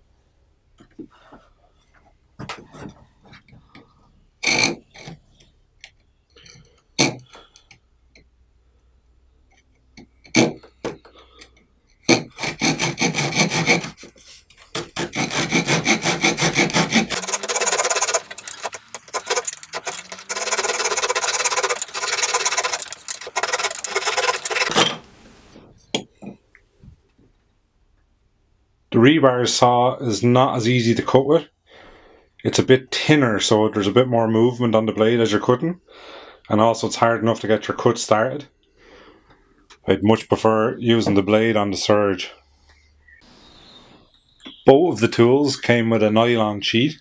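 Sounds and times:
hand saw cutting wood: 0:04.4 - 0:05.0, 0:12.1 - 0:14.1, 0:14.8 - 0:25.0.

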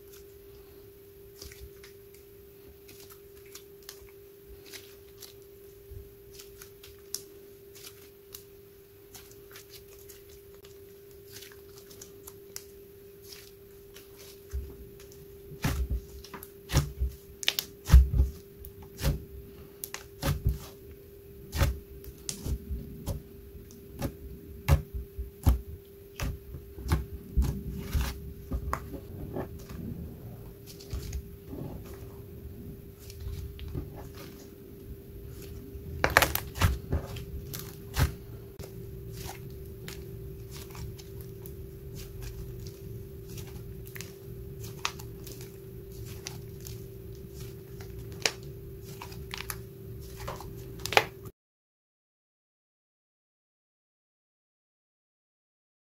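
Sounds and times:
faint hum: 0:00.0 - 0:51.3.

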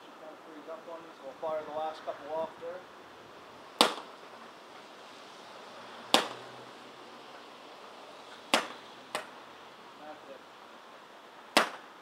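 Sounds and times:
paintball pistol shots: 0:03.8 - 0:04.1, 0:06.1 - 0:06.4, 0:08.5 - 0:09.3, 0:11.5 - 0:11.9.

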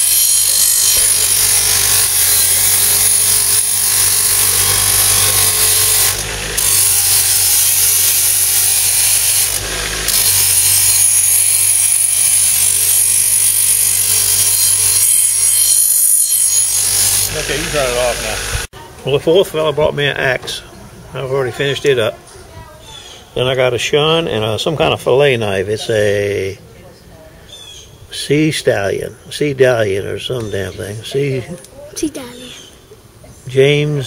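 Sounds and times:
grinder motor hum: 0:00.0 - 0:18.7
metal hissing on grinder wheel: 0:00.0 - 0:18.7.

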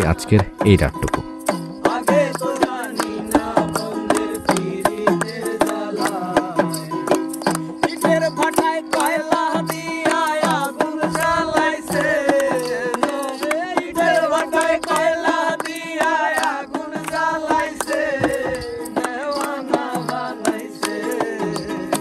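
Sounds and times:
strummed ukulele: 0:00.0 - 0:22.0
person singing: 0:16.4 - 0:22.0.

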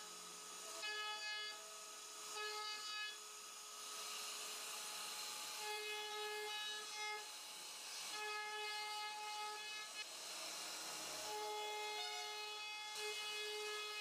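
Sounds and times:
hiss of wood cutting: 0:00.0 - 0:14.0
router spindle whining: 0:00.0 - 0:14.0.

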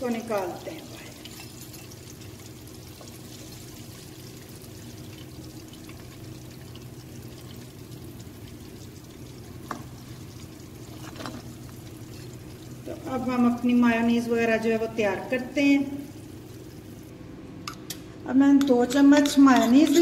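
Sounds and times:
oil sizzling in a wok: 0:00.0 - 0:17.4
low steady hum: 0:00.0 - 0:20.0.

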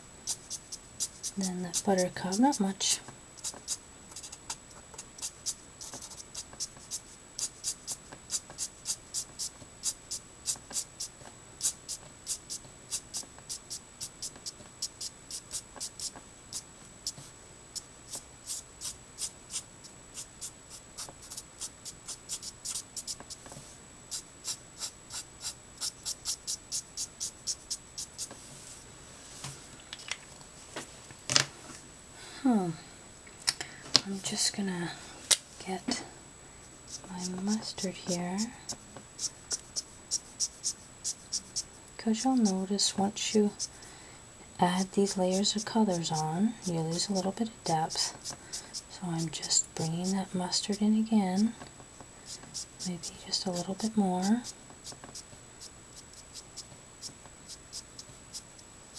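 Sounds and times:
marker swishing on card: 0:03.4 - 0:19.6, 0:20.2 - 0:28.8, 0:36.9 - 0:42.6, 0:52.3 - 0:58.6.

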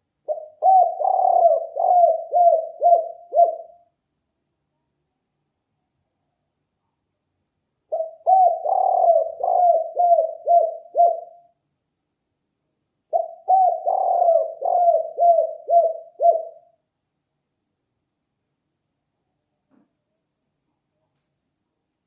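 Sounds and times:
dove cooing: 0:00.2 - 0:03.8, 0:07.9 - 0:11.5, 0:13.1 - 0:16.8.

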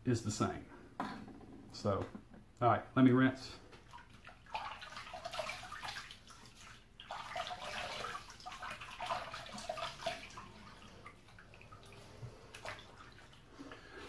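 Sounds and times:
water splashing at a sink: 0:03.8 - 0:14.0.

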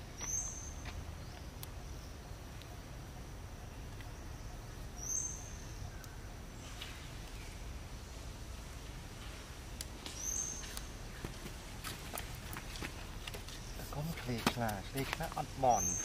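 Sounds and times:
low background hiss: 0:00.0 - 0:16.0.

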